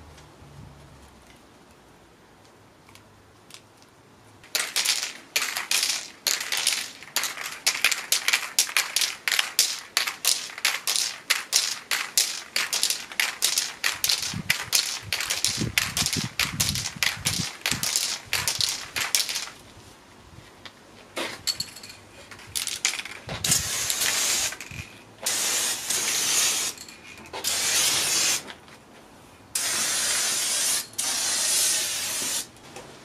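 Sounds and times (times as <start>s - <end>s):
spray paint can hissing: 4.5s - 19.6s, 22.6s - 26.8s, 27.4s - 28.5s, 29.6s - 32.5s.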